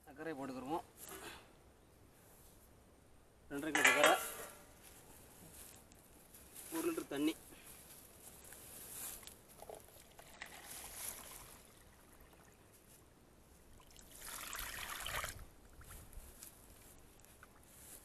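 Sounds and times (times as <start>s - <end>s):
water pouring onto sugar: 9.6s - 12.7s, 13.8s - 15.4s.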